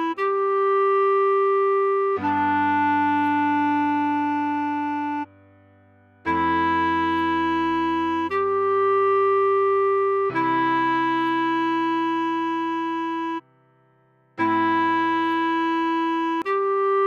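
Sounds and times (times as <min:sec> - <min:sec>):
clarinet melody: 0:00.0 - 0:05.4, 0:06.2 - 0:13.6, 0:14.4 - 0:17.0
soft low chordal accompaniment: 0:00.0 - 0:17.0.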